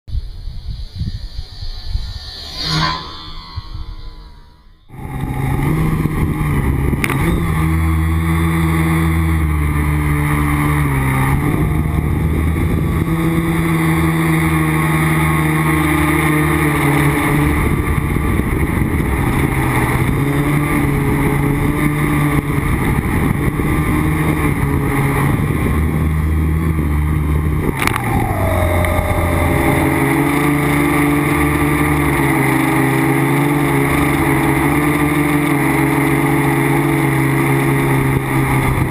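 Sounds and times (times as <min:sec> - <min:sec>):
short falling tone: 0:00.1 - 0:06.2, 0:27.7 - 0:32.4
drone motors buzzing: 0:00.1 - 0:38.8.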